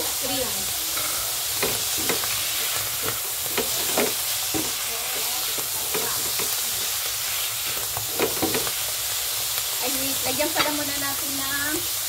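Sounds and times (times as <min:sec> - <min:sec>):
mushrooms sizzling in oil: 0:00.0 - 0:12.0
spatula scraping and tapping pan: 0:01.0 - 0:08.8, 0:10.4 - 0:11.2.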